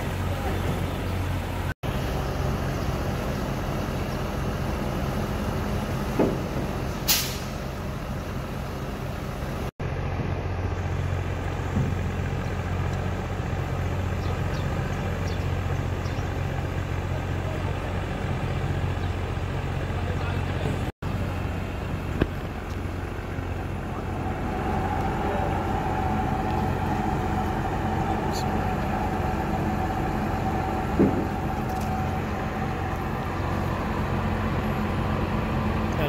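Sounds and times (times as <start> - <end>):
diesel engine running: 0.0 - 36.0
short hiss of air: 7.0 - 7.6.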